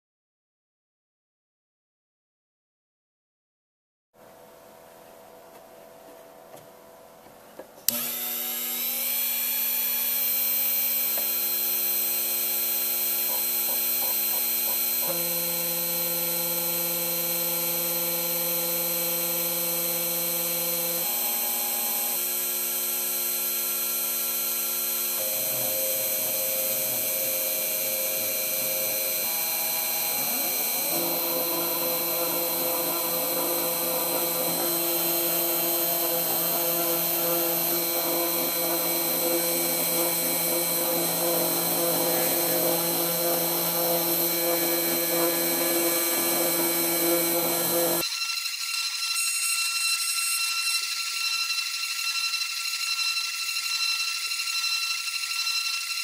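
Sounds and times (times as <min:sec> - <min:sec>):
spindle motor whining: 0:07.9 - 0:56.0
low motor tones changing pitch: 0:24.5 - 0:48.0.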